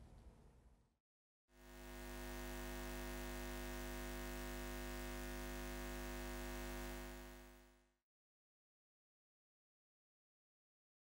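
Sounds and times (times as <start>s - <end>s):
electric hum with hiss: 1.6s - 7.8s.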